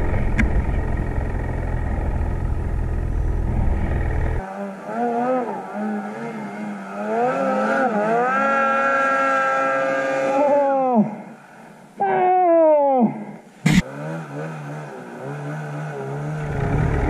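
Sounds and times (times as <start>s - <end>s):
snowmobile engine revving: 0.0s - 11.0s, 13.6s - 17.0s.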